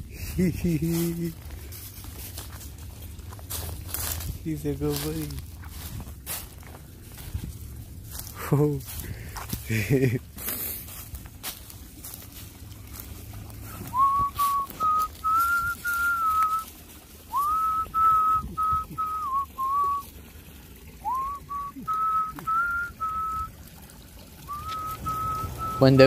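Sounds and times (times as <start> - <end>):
person whistling a tune: 13.8 - 16.7, 17.3 - 20.0, 21.0 - 23.5, 24.5 - 26.0.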